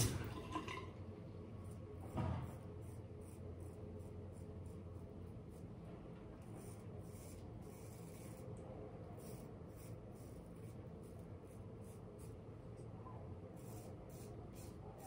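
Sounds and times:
razor scraping stubble: 6.5 - 12.4.

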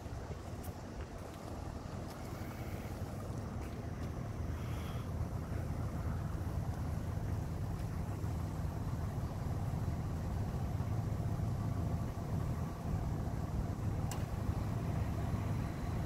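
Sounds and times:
vehicle engines idling: 0.0 - 16.0.

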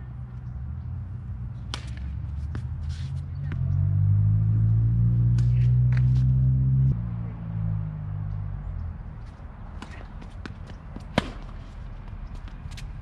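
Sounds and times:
tennis ball bouncing on court: 1.6 - 2.7, 9.7 - 12.9
tennis ball struck by rackets: 1.6 - 2.7, 9.7 - 11.8.

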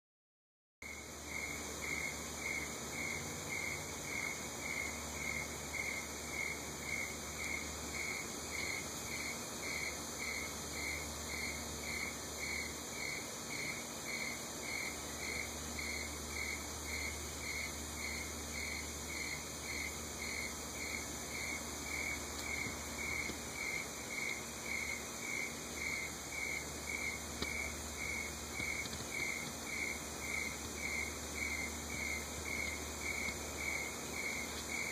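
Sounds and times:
cricket chirping: 0.8 - 34.9
steady high hiss: 0.8 - 34.9.

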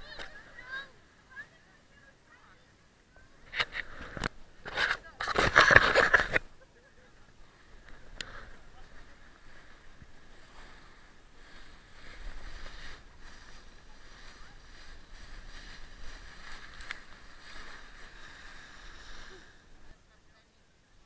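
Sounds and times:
sled scraping over snow: 3.8 - 20.0.

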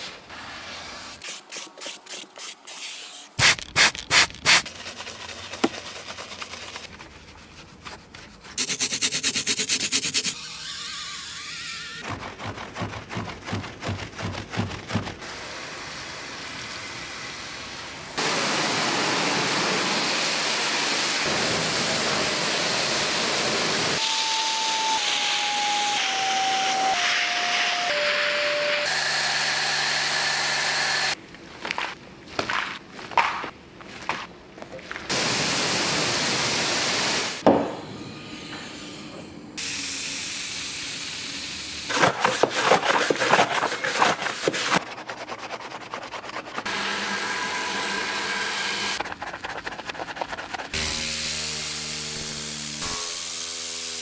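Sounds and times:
brush working foam: 3.4 - 15.3, 41.9 - 47.3, 49.0 - 51.1
cloth rubbing and scrubbing: 3.9 - 10.4, 41.9 - 46.7, 49.0 - 50.8
vacuum hiss: 15.3 - 25.7, 35.1 - 37.4.

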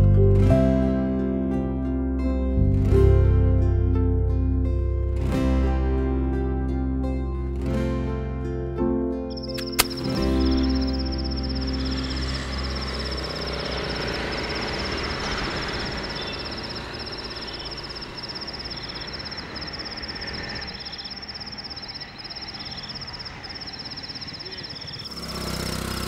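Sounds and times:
cricket trill: 9.3 - 26.0.

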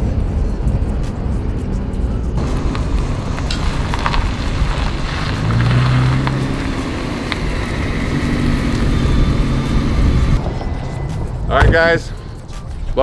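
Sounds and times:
car engine hum: 0.0 - 13.0
steady rushing noise: 0.0 - 13.0.

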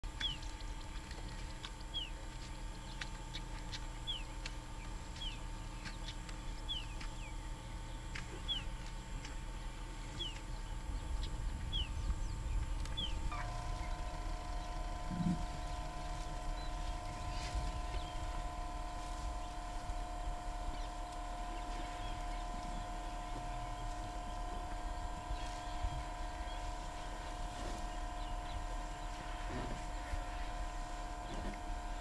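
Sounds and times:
faint steady hum: 0.0 - 32.0
low outdoor rumble: 0.0 - 32.0
bird high falling call: 13.3 - 18.4.

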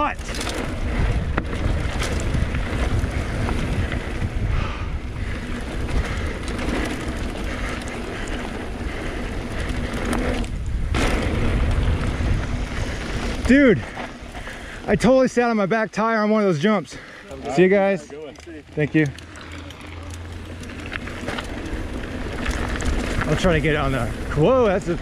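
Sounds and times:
bike clatter: 0.0 - 15.0, 17.3 - 25.0
wind buffeting microphone: 0.0 - 15.2
bike tyres rumbling on dirt: 0.0 - 25.0.

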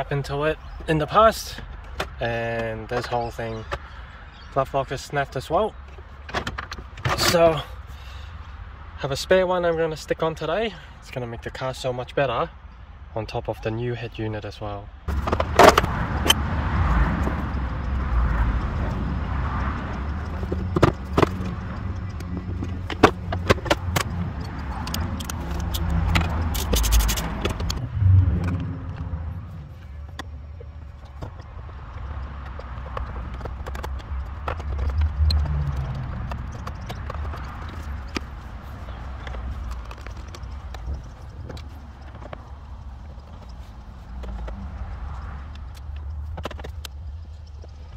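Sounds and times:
low rumble: 27.1 - 31.0.

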